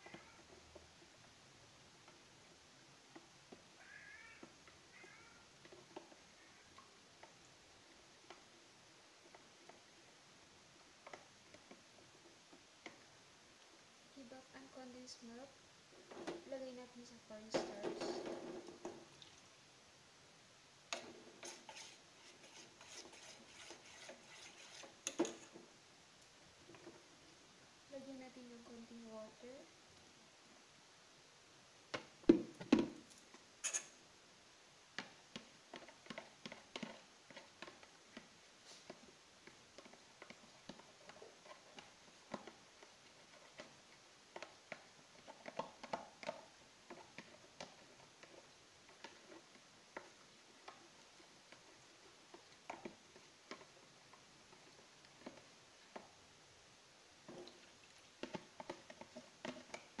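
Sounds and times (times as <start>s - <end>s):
spoon scraping plastic tub: 20.9s - 25.6s, 33.6s - 34.0s.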